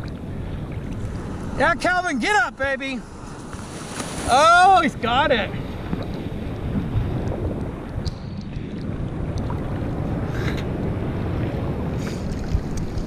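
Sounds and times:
ocean surf: 0:00.0 - 0:13.0
wind rumbling on microphone: 0:00.0 - 0:13.0.

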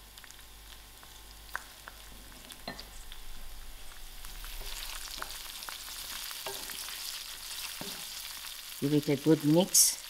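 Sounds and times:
hot oil sizzling in pan: 0:00.0 - 0:10.0
spoon tapping and scraping: 0:07.8 - 0:08.1.

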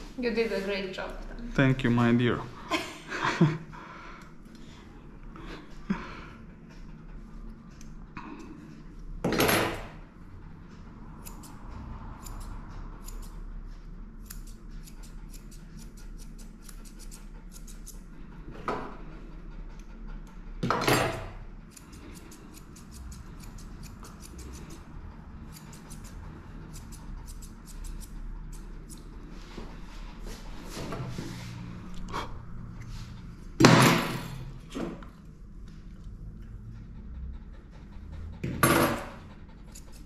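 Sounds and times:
scissors snipping: 0:21.7 - 0:24.8, 0:25.5 - 0:29.0.

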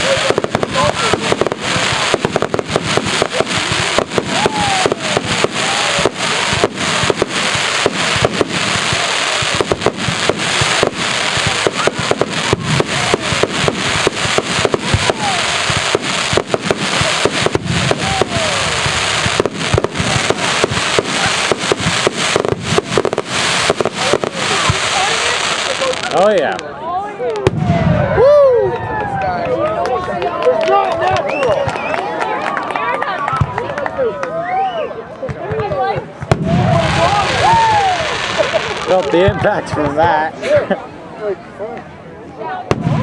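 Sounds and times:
firework crackle: 0:00.0 - 0:26.6, 0:36.2 - 0:40.1, 0:42.7 - 0:43.0.

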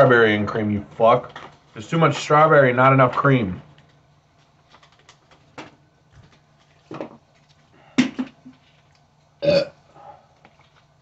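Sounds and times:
man burping: 0:09.4 - 0:09.8.

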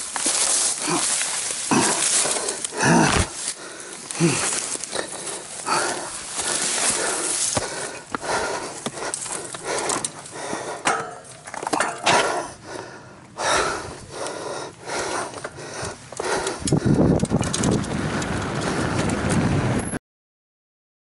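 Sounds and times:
person panting heavily: 0:00.2 - 0:17.3
sharp clicks and knocks: 0:16.1 - 0:18.4.

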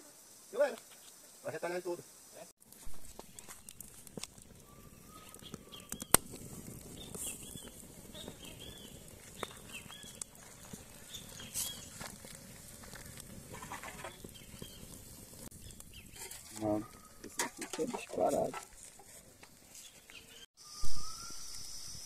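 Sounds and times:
campfire crackling: 0:02.3 - 0:22.0
bird chirping: 0:03.3 - 0:12.0, 0:13.9 - 0:18.0, 0:19.7 - 0:22.0.

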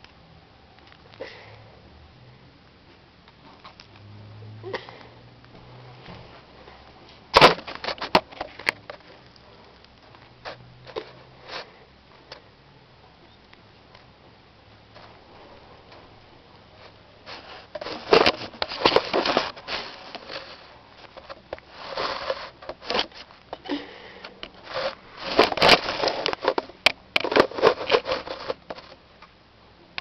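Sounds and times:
tortoise crunching corn: 0:16.7 - 0:29.0.

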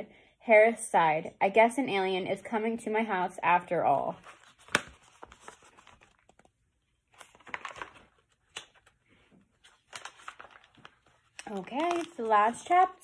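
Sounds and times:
book pages rustling: 0:04.2 - 0:13.0.

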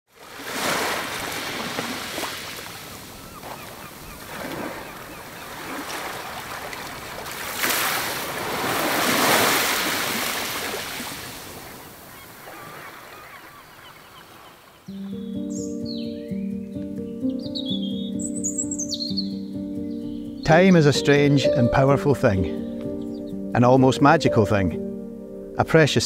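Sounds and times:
sea waves washing onto beach: 0:00.1 - 0:14.9.

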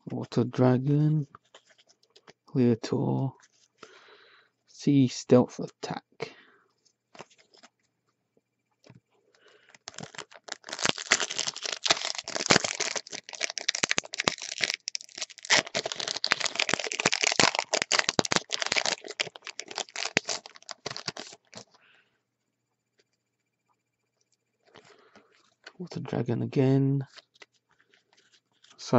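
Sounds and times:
wrapper crinkling and tearing: 0:09.7 - 0:21.8.

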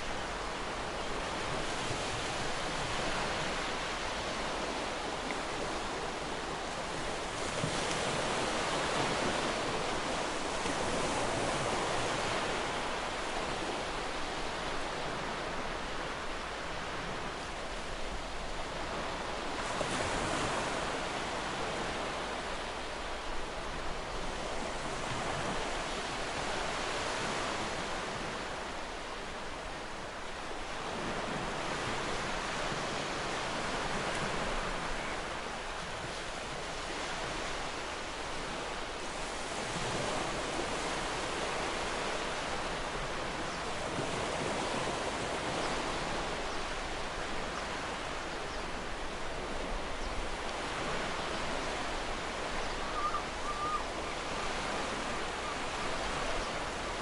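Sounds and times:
ocean waves washing ashore: 0:00.0 - 0:57.0
faint bird call: 0:52.6 - 0:54.3.

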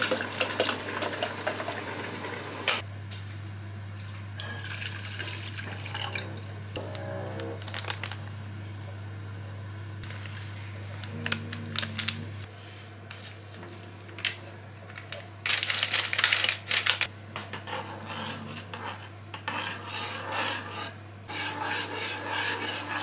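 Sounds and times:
metal spoon scraping saucepan: 0:17.4 - 0:23.0.

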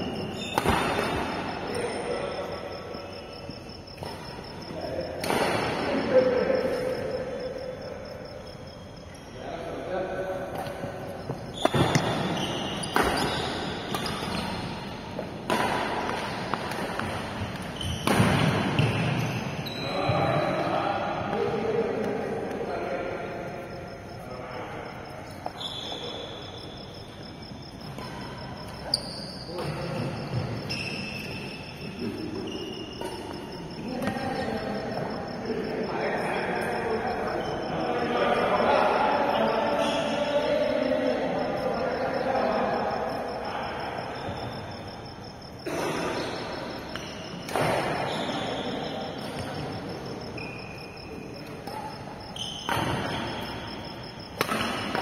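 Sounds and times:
cricket chirping: 0:00.0 - 0:55.0
steady background noise: 0:00.0 - 0:55.0
rackets hitting shuttlecock: 0:00.2 - 0:02.0, 0:05.1 - 0:06.1, 0:10.5 - 0:19.3, 0:46.8 - 0:48.1, 0:52.6 - 0:53.2, 0:54.3 - 0:55.0.

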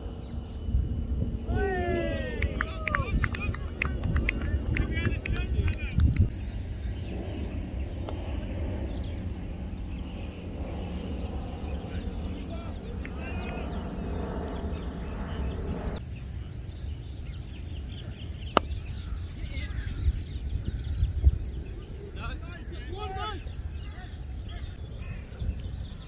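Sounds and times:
steady drone: 0:00.0 - 0:02.4, 0:03.1 - 0:19.8
heavy low rumble: 0:00.0 - 0:16.9
birds calling faintly: 0:00.0 - 0:26.0.

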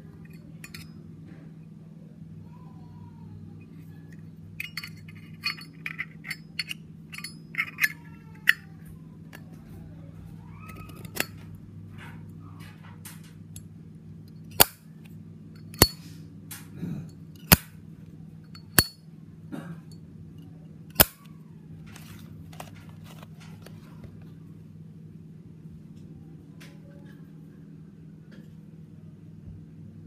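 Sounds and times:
low steady hum: 0:00.0 - 0:30.0
handling noise: 0:21.8 - 0:24.4.

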